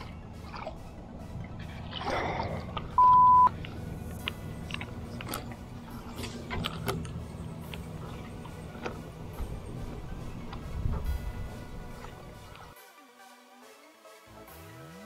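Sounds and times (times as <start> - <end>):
high censor bleep: 3.0 - 3.5.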